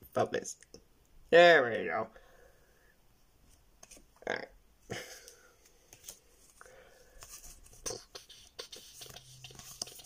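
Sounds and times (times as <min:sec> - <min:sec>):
cards rustling and tapping: 0:05.3 - 0:06.3, 0:07.1 - 0:10.0.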